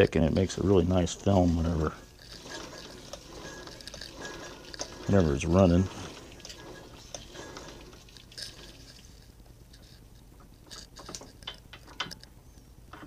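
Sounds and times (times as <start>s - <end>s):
light clicks and taps on metal gears: 9.7s - 13.0s.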